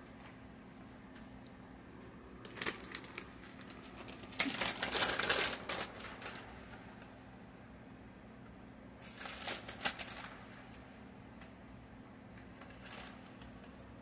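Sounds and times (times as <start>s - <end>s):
plastic bag crinkling: 2.3s - 7.2s, 9.0s - 10.9s, 12.4s - 13.8s.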